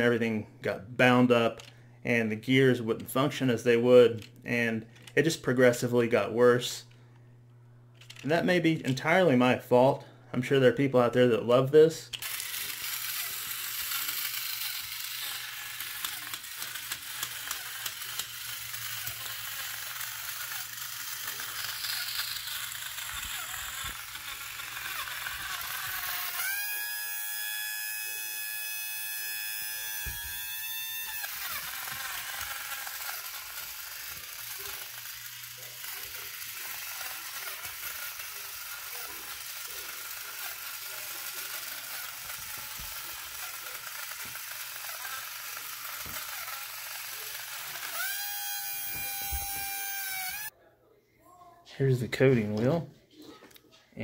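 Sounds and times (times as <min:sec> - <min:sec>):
toy robot motor whirring and clicking: 0:05.0 - 0:05.4, 0:08.0 - 0:08.9, 0:12.1 - 0:50.6.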